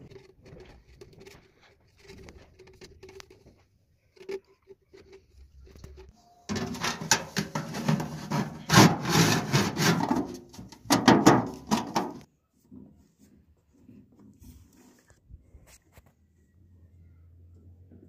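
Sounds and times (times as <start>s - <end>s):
tin sheet scraping and rubbing: 6.5s - 12.3s.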